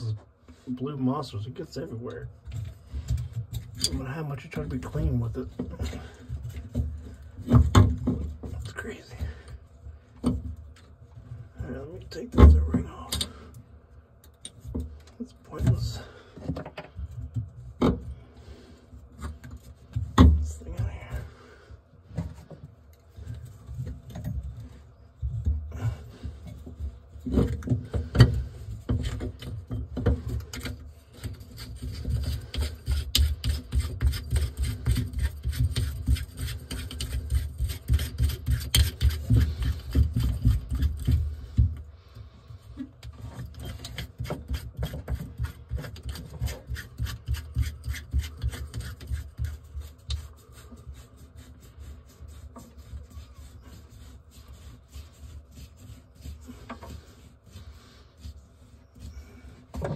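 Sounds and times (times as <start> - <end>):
rag rubbing on metal: 23.1 - 41.8, 42.8 - 59.9.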